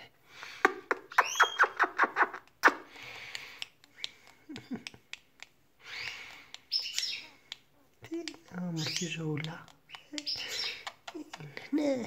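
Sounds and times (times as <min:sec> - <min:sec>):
lip-smacking kisses: 0:00.9 - 0:11.6
budgie chirps: 0:01.1 - 0:07.7, 0:08.3 - 0:11.5
soft breathy whispers: 0:05.8 - 0:12.0.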